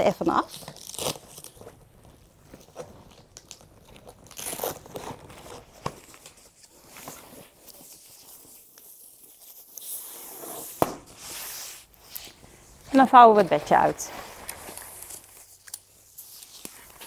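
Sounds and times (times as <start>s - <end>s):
fabric rustling and scraping: 3.9s - 17.0s.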